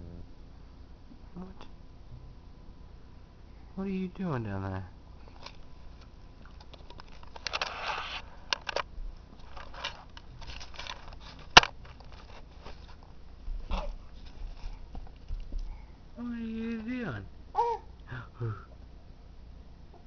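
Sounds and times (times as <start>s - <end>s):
handling rustle: 5.2s - 15.8s.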